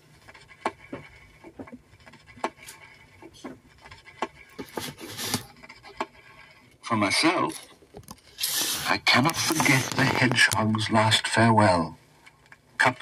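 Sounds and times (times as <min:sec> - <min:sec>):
vinyl crackles and pops: 0:00.0 - 0:11.5
scratchy rustle: 0:00.2 - 0:06.8, 0:08.4 - 0:10.6.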